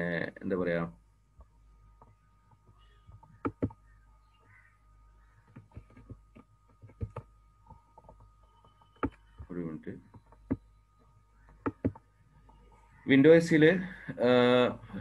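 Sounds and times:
sharp clicks and taps: 1.4s - 3.8s, 5.5s - 9.2s, 10.1s - 12.6s
faint steady high tone: 2.0s - 15.0s.

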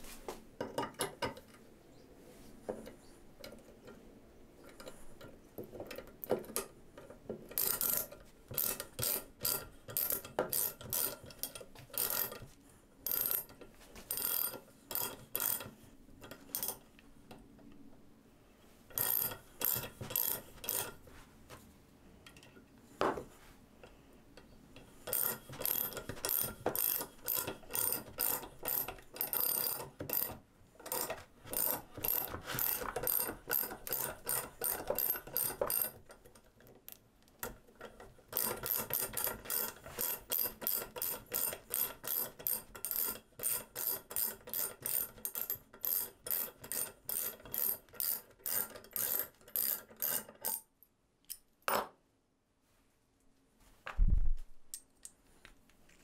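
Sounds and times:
ratchet clicking: 7.5s - 12.4s, 13.0s - 16.8s, 18.9s - 21.0s, 25.0s - 36.0s, 38.3s - 50.6s.

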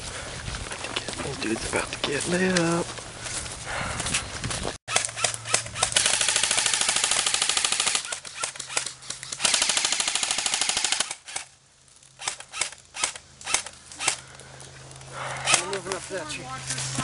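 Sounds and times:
airsoft rifles firing: 4.9s - 11.6s, 12.2s - 14.2s.

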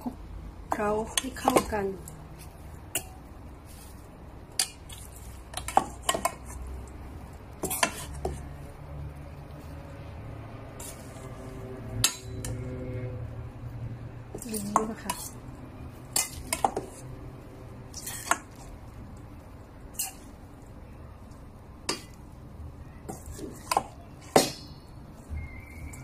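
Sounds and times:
low background hum: 0.0s - 26.0s
metal spoon scraping steel bowl: 7.6s - 8.5s, 10.7s - 13.2s, 14.4s - 17.1s, 17.9s - 18.7s, 19.9s - 20.4s.

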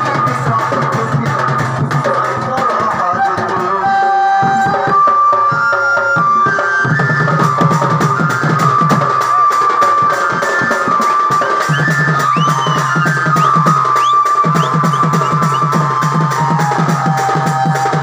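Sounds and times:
dance music with drums: 0.0s - 18.0s.

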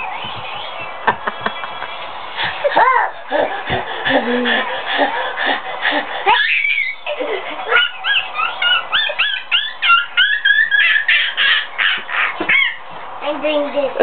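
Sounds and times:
children shrieking roars: 6.2s - 7.1s.

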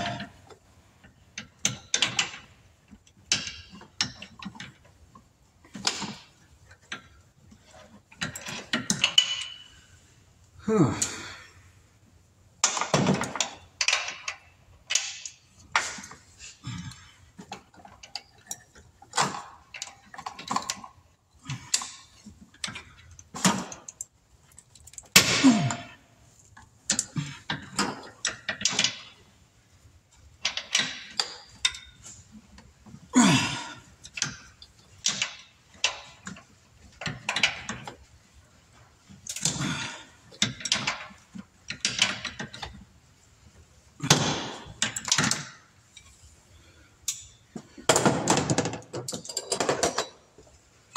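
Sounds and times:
hand tools clinking against metal: 0.0s - 0.5s, 48.5s - 50.4s.

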